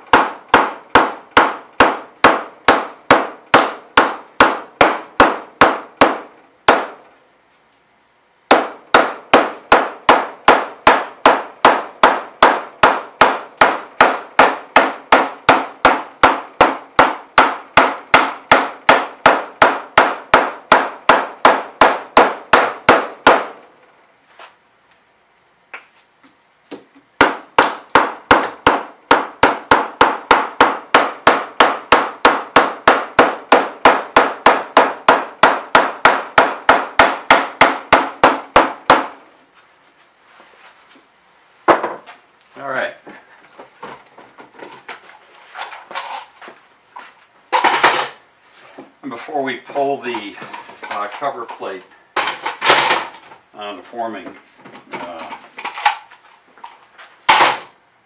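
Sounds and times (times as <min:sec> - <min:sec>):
mallet striking aluminium: 0:00.0 - 0:07.0, 0:08.5 - 0:23.6, 0:27.2 - 0:39.2.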